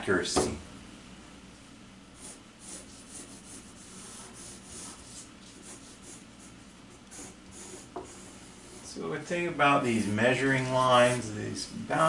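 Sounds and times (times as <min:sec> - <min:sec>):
pencil scratching on paper: 0:02.2 - 0:08.9.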